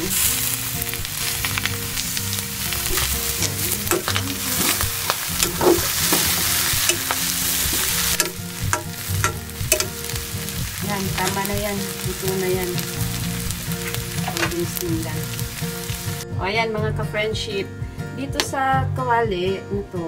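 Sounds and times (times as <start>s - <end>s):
meat and okra sizzling in a pan: 0.0s - 16.2s
utensil clicking and scraping pan: 2.8s - 10.0s.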